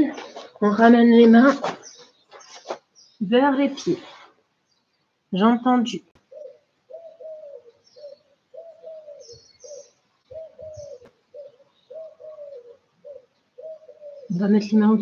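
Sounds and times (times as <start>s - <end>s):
small birds chirping: 0.0s - 15.0s
dove cooing: 6.2s - 14.8s.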